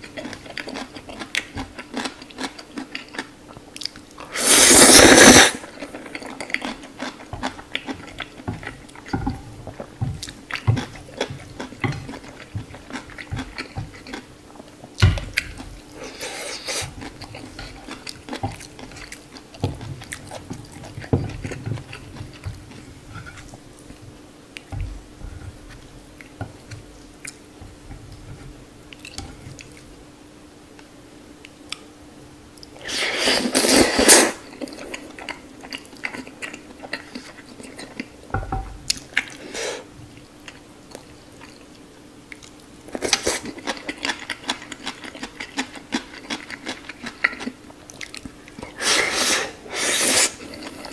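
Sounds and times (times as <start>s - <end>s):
faint steady hum: 0.0s - 50.9s
chewing and slurping noodles: 0.1s - 14.3s.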